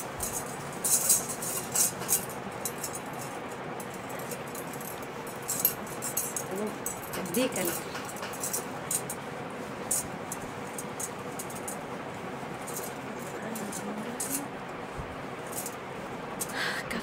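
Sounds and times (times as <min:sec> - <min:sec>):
light metallic clinks: 0:00.0 - 0:09.2
steady background hiss: 0:00.0 - 0:17.0.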